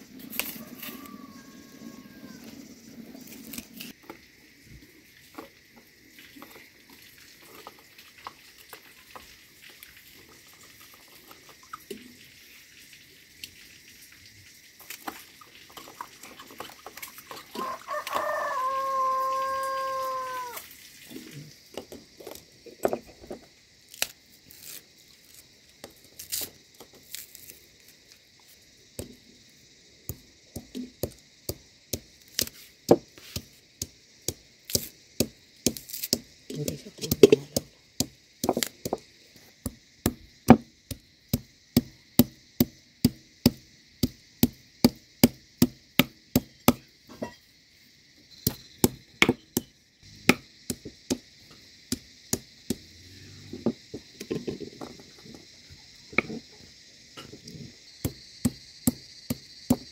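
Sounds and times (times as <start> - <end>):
rooster crowing: 0.3 - 2.7, 17.5 - 20.6
stone pestle knocking: 48.5 - 49.7.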